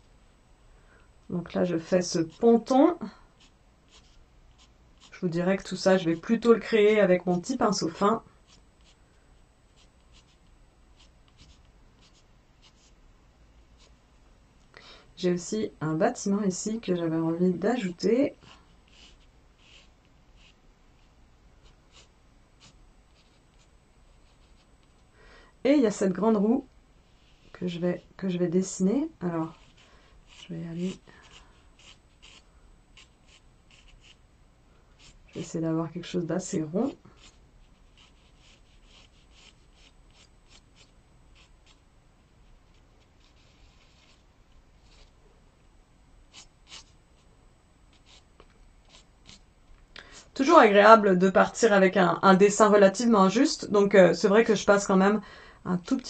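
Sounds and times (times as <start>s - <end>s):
pencil scratching on paper: 2.0s - 5.2s, 7.6s - 9.0s, 9.7s - 13.0s, 13.6s - 13.9s, 17.7s - 24.8s, 29.3s - 34.2s, 35.0s - 35.5s, 36.6s - 41.8s, 42.4s - 44.2s, 44.8s - 45.1s, 46.3s - 47.3s, 47.9s - 49.4s.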